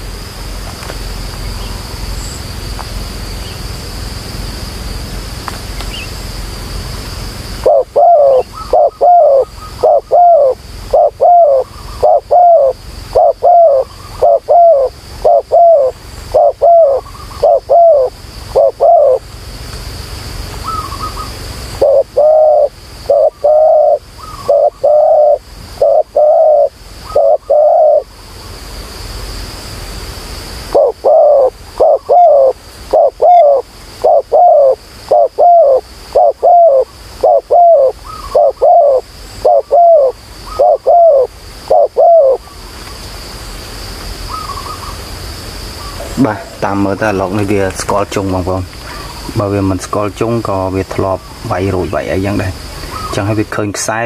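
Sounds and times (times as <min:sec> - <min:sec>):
steady high whine: 0:00.0 - 0:54.0
dove cooing: 0:07.6 - 0:19.3, 0:20.6 - 0:28.2, 0:30.7 - 0:42.6, 0:44.3 - 0:45.0, 0:51.0 - 0:53.3.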